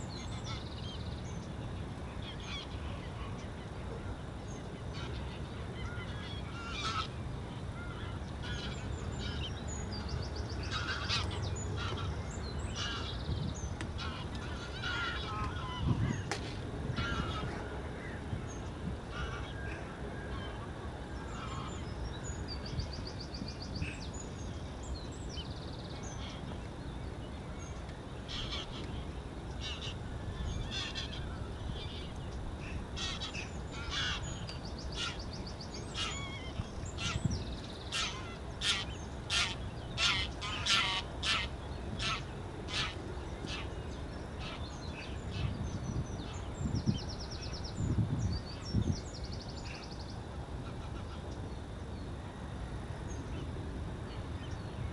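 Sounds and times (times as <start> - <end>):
geese honking: 10.7 - 12.1, 14.0 - 15.9, 33.0 - 34.2, 37.9 - 43.6.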